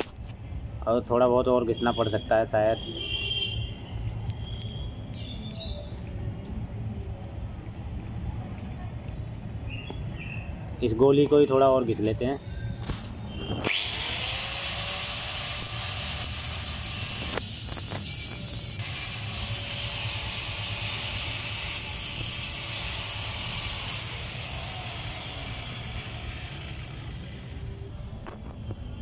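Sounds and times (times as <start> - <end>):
angle grinder whining: 13.5 - 27.6.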